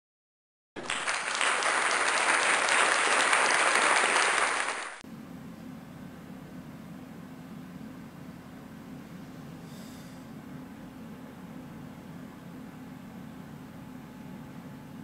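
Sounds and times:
applause: 0:00.8 - 0:05.0.

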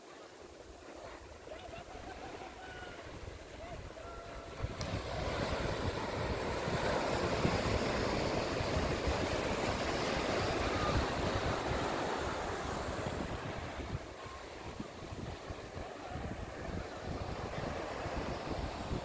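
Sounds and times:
ocean surf on sand: 0:00.0 - 0:19.0
wind buffeting microphone: 0:01.9 - 0:19.0.

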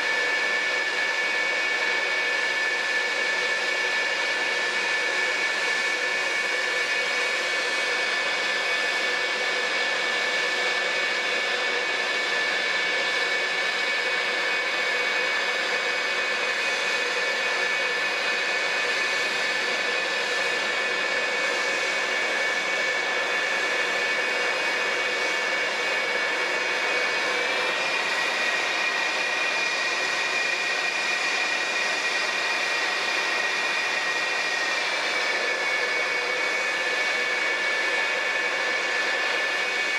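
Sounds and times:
jet engines idling whine: 0:00.0 - 0:39.9.

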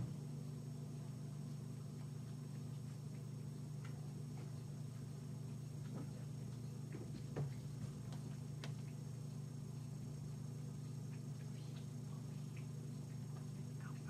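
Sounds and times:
low room hum: 0:00.0 - 0:14.0.

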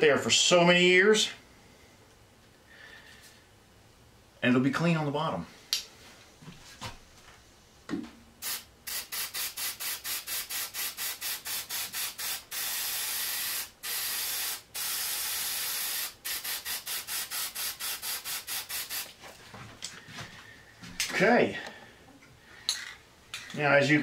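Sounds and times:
spray paint can hissing: 0:08.4 - 0:19.2.

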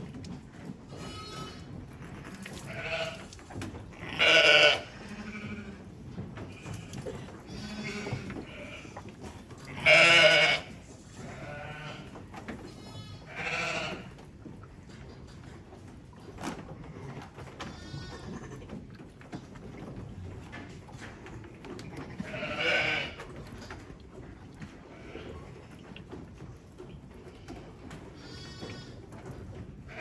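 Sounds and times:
sheep bleating: 0:00.9 - 0:03.3, 0:04.0 - 0:05.9, 0:06.7 - 0:09.0, 0:09.6 - 0:12.1, 0:12.7 - 0:14.1, 0:22.2 - 0:23.2.

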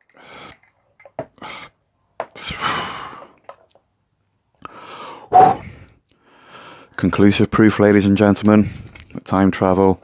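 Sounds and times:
man gasping breath: 0:04.6 - 0:07.0.

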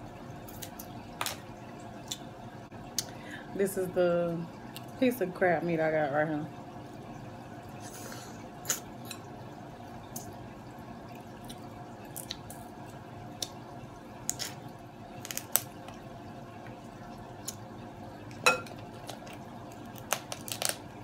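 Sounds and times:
crab shell cracking: 0:15.2 - 0:16.0, 0:18.6 - 0:21.0.

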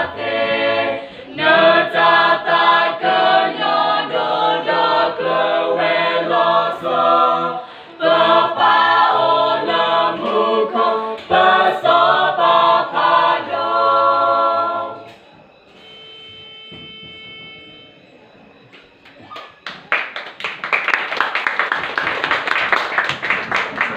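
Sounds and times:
group singing a cappella: 0:00.0 - 0:15.2
people clapping: 0:09.7 - 0:11.6, 0:18.8 - 0:23.9.

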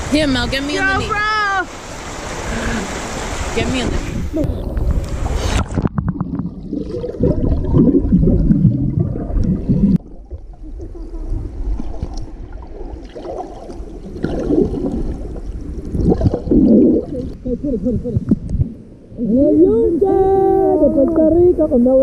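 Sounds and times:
underwater river rush: 0:00.0 - 0:22.0
bubbling knocks: 0:04.4 - 0:10.6.

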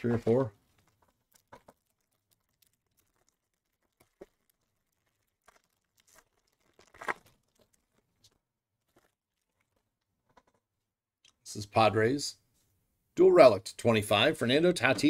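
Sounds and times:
foil wrapper tearing and crinkling: 0:00.9 - 0:09.8.

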